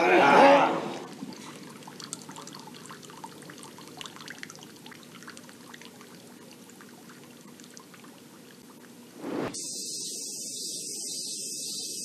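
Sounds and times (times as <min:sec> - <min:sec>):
faint trickling water: 0:00.9 - 0:09.2
small water drips: 0:01.0 - 0:09.1.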